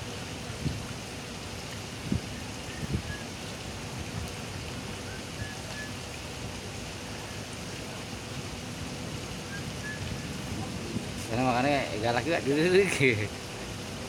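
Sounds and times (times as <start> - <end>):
aerators splashing water: 0.0 - 14.0.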